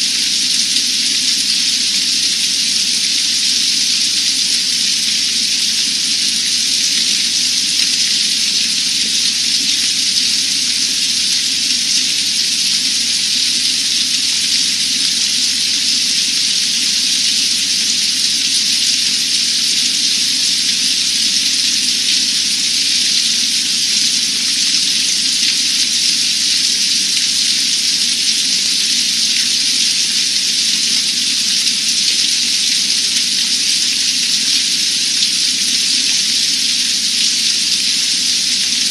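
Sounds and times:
hard rain falling on water: 0.0s - 38.9s.

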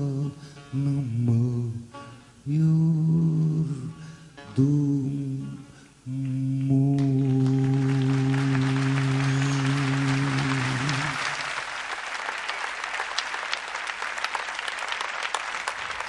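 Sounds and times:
man singing a long note: 0.0s - 11.4s
audience applause: 7.0s - 16.0s.

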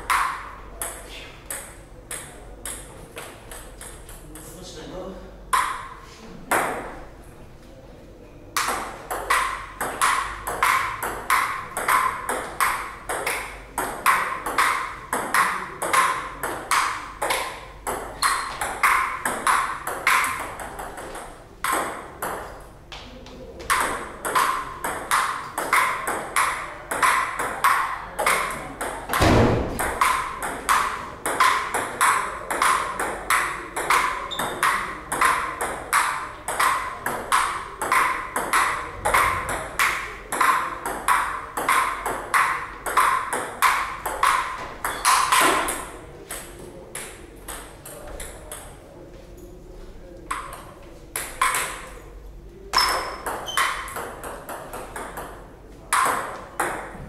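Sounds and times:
table tennis ball hits: 0.0s - 4.6s, 5.5s - 7.1s, 8.6s - 48.8s, 50.3s - 52.0s, 52.7s - 57.0s.

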